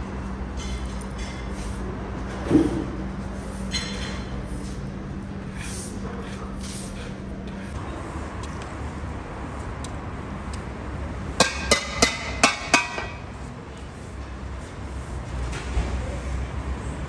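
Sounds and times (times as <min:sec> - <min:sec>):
sharp metallic clanks: 0:11.4 - 0:13.2.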